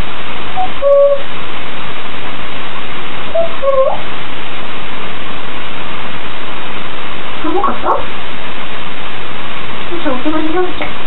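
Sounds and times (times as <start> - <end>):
loud steady hiss: 0.0 - 11.0
parrot whistling: 0.6 - 1.3, 3.3 - 4.1.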